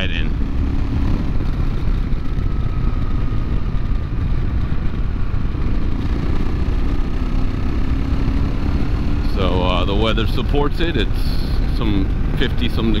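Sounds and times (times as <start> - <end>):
wind noise on microphone: 0.0 - 7.8
motorcycle engine rumble: 0.0 - 13.0.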